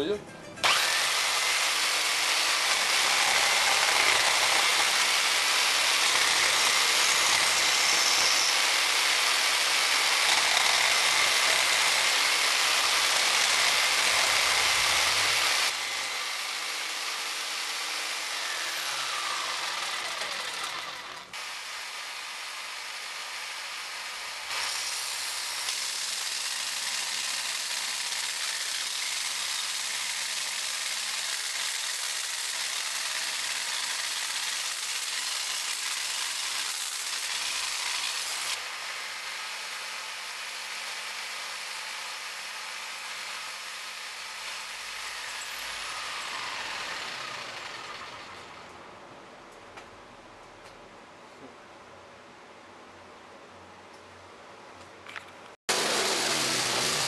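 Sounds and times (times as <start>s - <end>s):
jigsaw cutting wood and metal: 0.0s - 48.8s, 55.7s - 57.0s.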